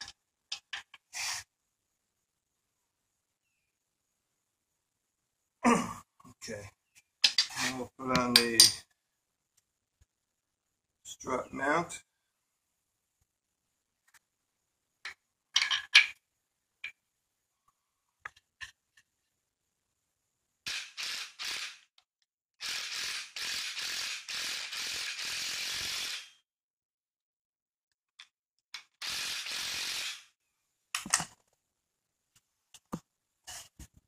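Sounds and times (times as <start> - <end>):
impact wrench bursts: 20.7 - 21.9, 22.6 - 26.4, 29.0 - 30.3.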